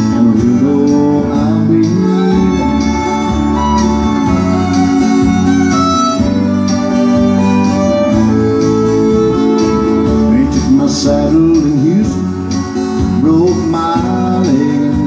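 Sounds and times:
acoustic guitar strumming chords: 0.0s - 15.0s
sliding bending lead instrument: 1.8s - 13.4s.

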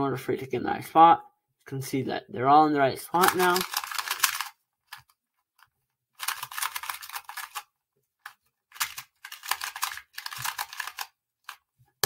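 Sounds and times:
puzzle cube clicking: 3.2s - 11.7s.

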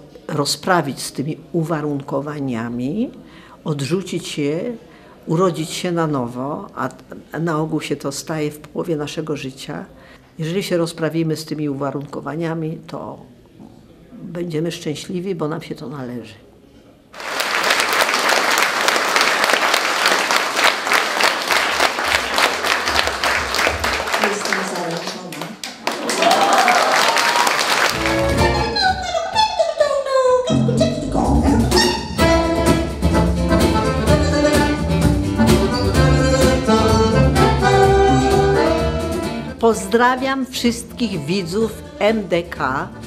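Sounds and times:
audience applauding: 17.2s - 28.8s
accordion playing chords: 28.0s - 29.0s, 30.5s - 40.2s
cajon beats: 30.6s - 39.6s.

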